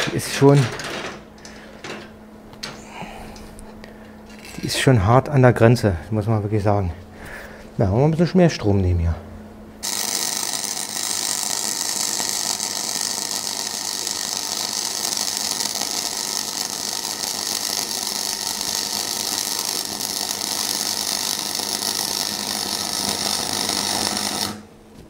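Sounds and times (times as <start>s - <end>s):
welding arc crackling and sizzling: 9.8s - 24.7s.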